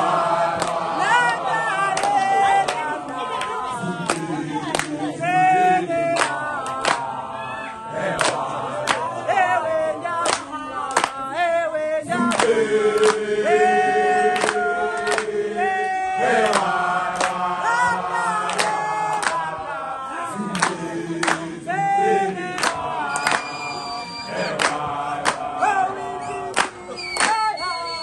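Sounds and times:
group singing in harmony: 0:00.0 - 0:28.0
sharp hand claps: 0:00.5 - 0:01.4, 0:02.0 - 0:05.0, 0:06.2 - 0:07.1, 0:08.2 - 0:09.1, 0:10.2 - 0:11.2, 0:12.3 - 0:13.2, 0:14.3 - 0:15.3, 0:16.4 - 0:19.5, 0:20.5 - 0:21.5, 0:22.6 - 0:23.5, 0:24.3 - 0:25.5, 0:26.5 - 0:27.5.

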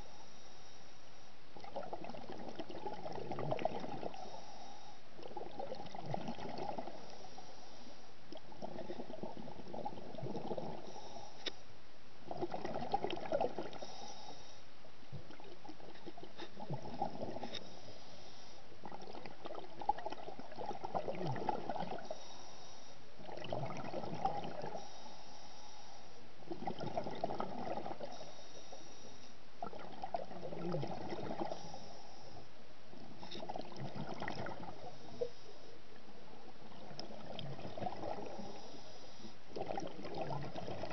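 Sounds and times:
diver breathing through regulator: 0:00.0 - 0:01.3, 0:04.0 - 0:05.1, 0:06.9 - 0:08.1, 0:10.7 - 0:11.6, 0:13.7 - 0:14.7, 0:16.4 - 0:18.7, 0:22.0 - 0:23.0, 0:24.7 - 0:26.2, 0:28.0 - 0:29.4, 0:31.4 - 0:32.5, 0:38.2 - 0:39.4
bubbling exhalations: 0:29.6 - 0:31.6.

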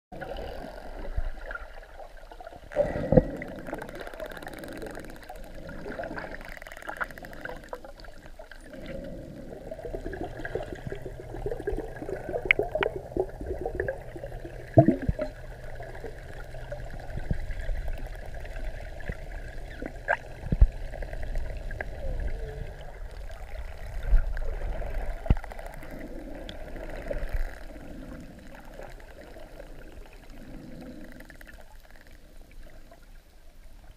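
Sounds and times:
underwater water wash: 0:00.1 - 0:33.9
bubbling: 0:00.2 - 0:33.1
dolphin clicks: 0:03.8 - 0:05.5.

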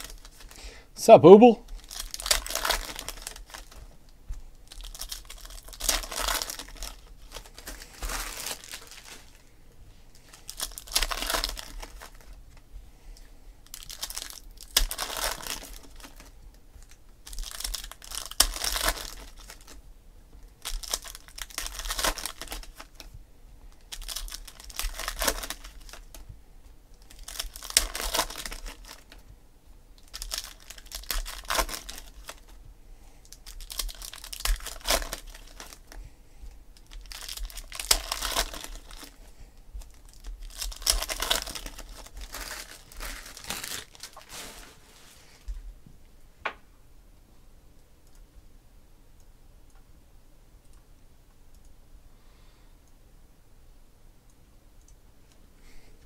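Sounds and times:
foil wrappers crinkling and tearing: 0:00.0 - 0:00.6, 0:01.6 - 0:03.9, 0:04.6 - 0:09.5, 0:10.2 - 0:12.4, 0:13.6 - 0:19.8, 0:20.6 - 0:23.1, 0:23.7 - 0:26.2, 0:27.0 - 0:29.2, 0:30.0 - 0:32.6, 0:33.2 - 0:36.1, 0:36.8 - 0:45.4.

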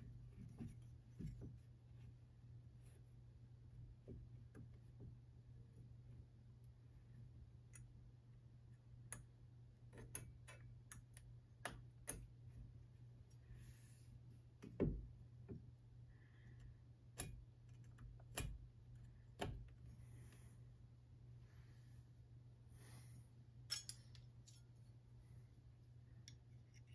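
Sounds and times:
metal square clicking and tapping: 0:17.1 - 0:18.7.

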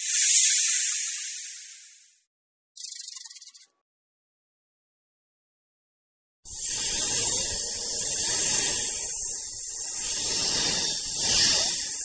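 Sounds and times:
snake hissing: 0:06.5 - 0:12.0.

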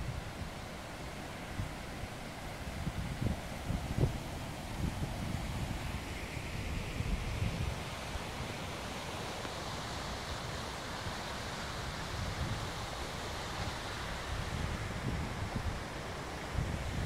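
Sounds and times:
outdoor rushing hiss: 0:00.0 - 0:17.0
wind rumbling on microphone: 0:01.5 - 0:08.6, 0:12.0 - 0:17.0.

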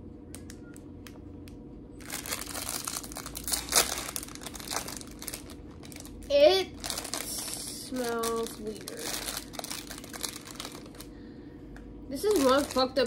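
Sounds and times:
wrapper crinkling and tearing: 0:02.0 - 0:11.2, 0:12.1 - 0:13.0.

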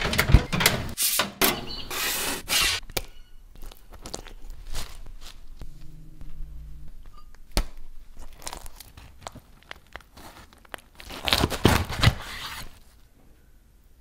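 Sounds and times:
crusty bread crackling and crunching: 0:08.0 - 0:11.9.

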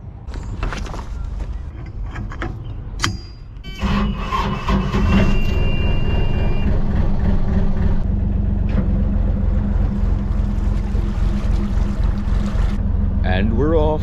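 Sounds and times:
diesel engine starting and idling: 0:03.6 - 0:14.0.

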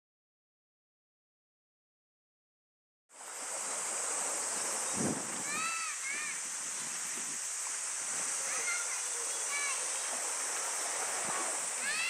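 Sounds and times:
sea waves splashing on shore: 0:03.1 - 0:12.0
wind: 0:03.1 - 0:12.0
high-pitched hiss: 0:03.2 - 0:12.0.

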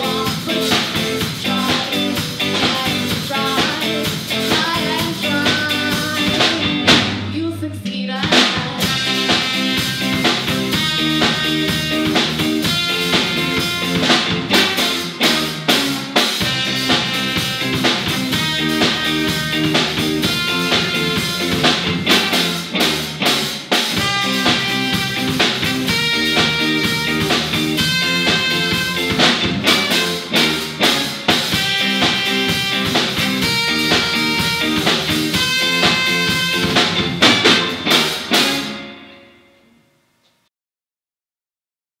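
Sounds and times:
electric bass: 0:00.0 - 0:39.2
drum kit: 0:00.0 - 0:39.4
electric guitar: 0:00.0 - 0:39.8
trumpet melody: 0:08.8 - 0:39.8.

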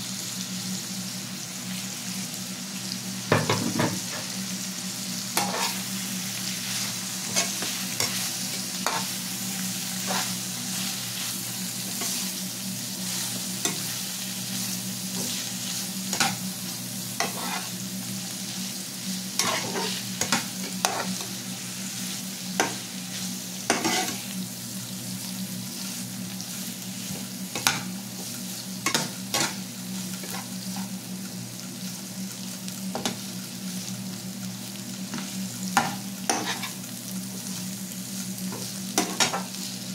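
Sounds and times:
vegetables sizzling in hot oil: 0:00.0 - 0:39.9
metal spatula scraping pan: 0:17.2 - 0:17.7, 0:23.7 - 0:24.2.

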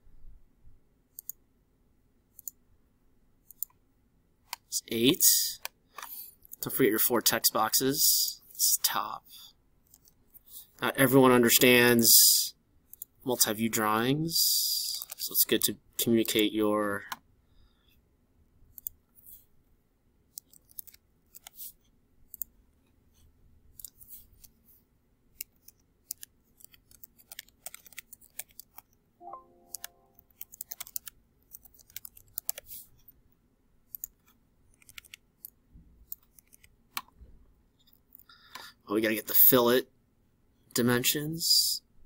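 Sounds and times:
mouse clicks: 0:01.1 - 0:01.4, 0:03.4 - 0:03.8, 0:18.7 - 0:19.0, 0:25.4 - 0:32.7, 0:33.9 - 0:37.2
keyboard typing: 0:25.4 - 0:32.8, 0:33.9 - 0:37.1.

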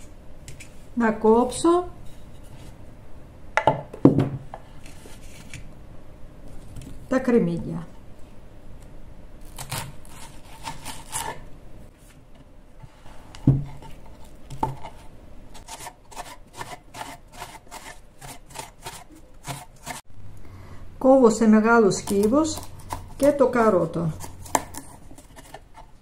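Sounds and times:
knife cutting onion: 0:09.4 - 0:11.5, 0:15.6 - 0:20.0, 0:21.8 - 0:26.0
knife scraping cutting board: 0:09.5 - 0:11.5, 0:12.8 - 0:20.0, 0:22.0 - 0:26.0.

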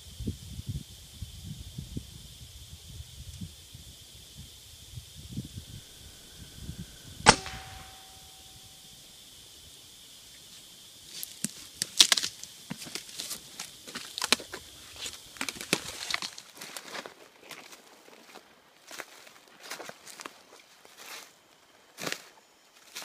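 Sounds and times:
air rifle shot: 0:05.5 - 0:09.1
footsteps through dry brush: 0:12.0 - 0:21.3.

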